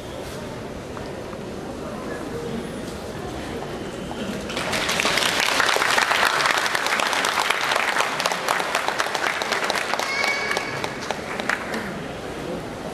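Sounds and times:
audience applause: 4.3s - 12.2s.

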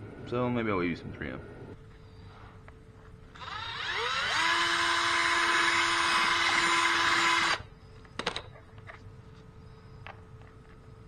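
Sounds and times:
power drill spinning: 3.3s - 7.7s.

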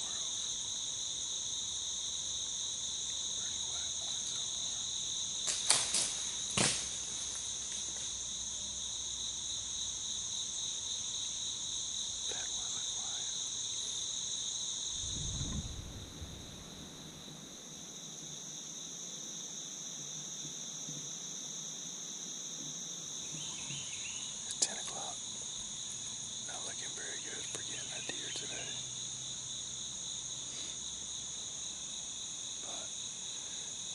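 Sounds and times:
insects droning: 0.0s - 33.9s
low thump: 15.0s - 16.5s.

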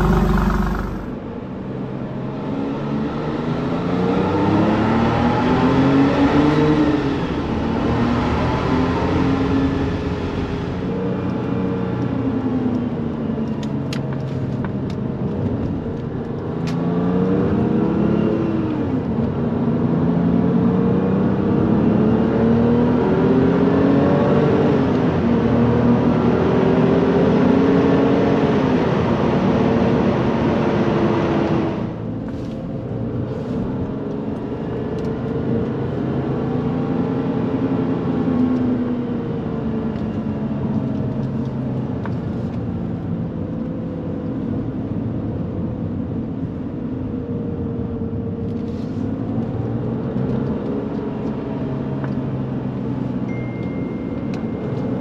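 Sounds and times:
car engine accelerating through gears: 0.0s - 1.2s.

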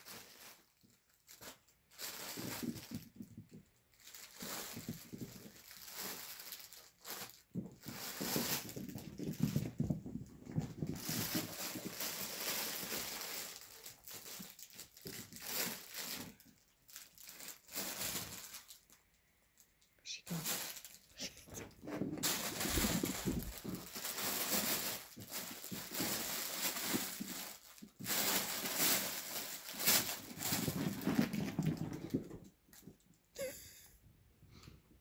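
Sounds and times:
fabric tunnel crinkling: 0.0s - 32.6s
puppies scuffling: 2.0s - 16.3s, 20.4s - 33.0s.

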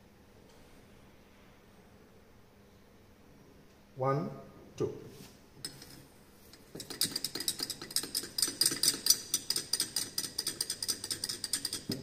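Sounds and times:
glass tubes clinking in beaker: 5.6s - 12.0s.

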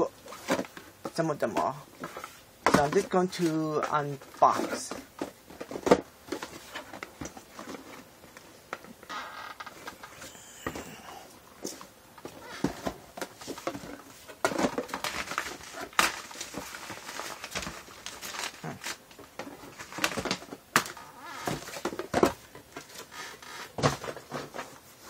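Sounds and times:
cardboard rustling and scraping: 0.0s - 25.0s.

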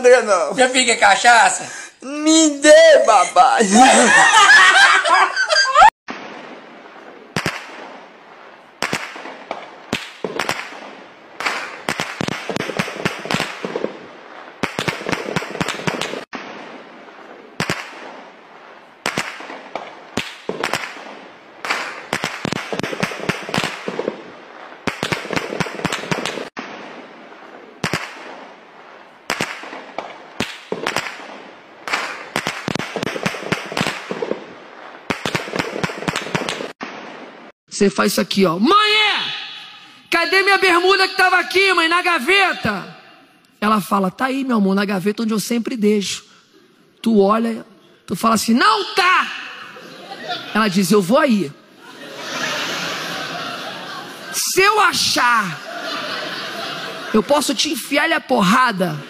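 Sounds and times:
gunshots with echo: 6.1s - 8.1s, 8.8s - 18.4s, 19.0s - 28.6s, 29.3s - 37.4s.

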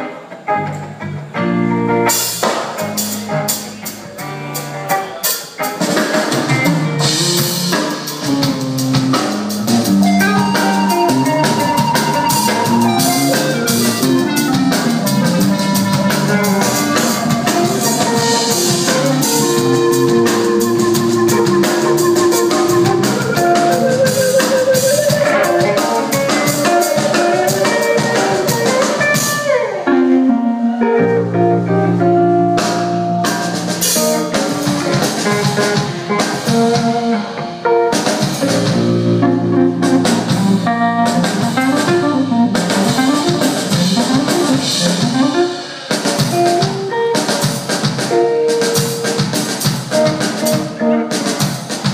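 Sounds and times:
drum kit: 0.0s - 51.9s
electric bass: 6.4s - 47.0s.

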